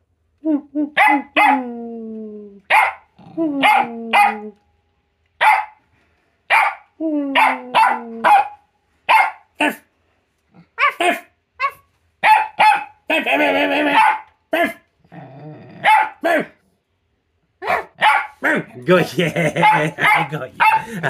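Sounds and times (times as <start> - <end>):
dog barking: 1.0 - 1.6, 2.7 - 4.4, 5.4 - 5.8, 6.5 - 9.8, 10.8 - 13.0, 13.9 - 14.8, 15.8 - 16.5, 17.6 - 18.8, 19.4 - 21.0.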